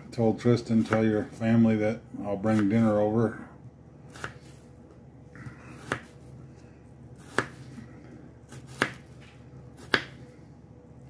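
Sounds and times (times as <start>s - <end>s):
knife chopping onion on board: 0.8s - 1.3s, 2.4s - 2.9s, 4.1s - 4.5s, 5.8s - 6.2s, 7.2s - 7.7s, 8.5s - 10.2s.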